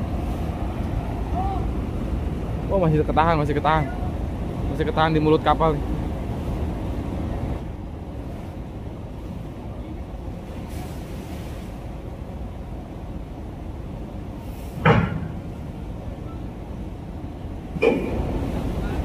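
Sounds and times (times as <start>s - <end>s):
heavy trucks rumbling: 10.1s - 19.0s.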